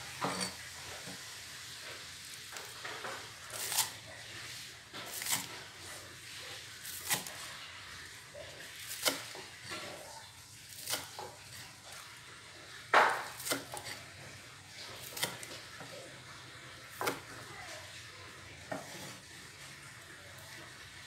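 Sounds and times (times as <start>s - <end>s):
utensils knocking against cookware: 0.1s - 0.7s.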